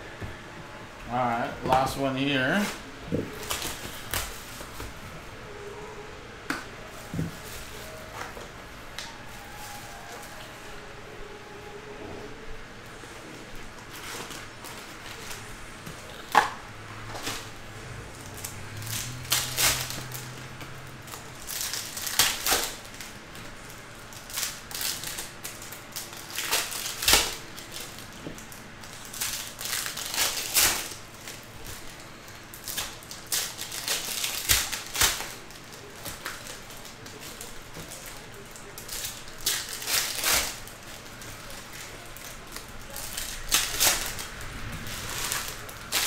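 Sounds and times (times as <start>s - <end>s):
foil wrappers crinkling and tearing: 1.2s - 5.0s, 13.5s - 46.0s.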